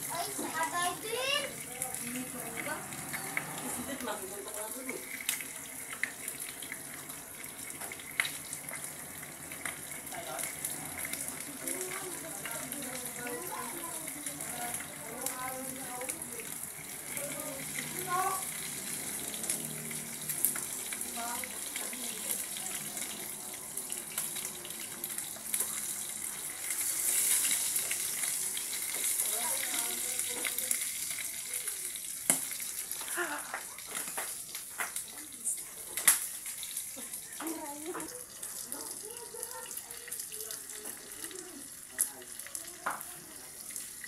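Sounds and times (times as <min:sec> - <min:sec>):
fish sizzling in oil: 0:00.0 - 0:44.0
oil popping and clicking: 0:04.8 - 0:35.3.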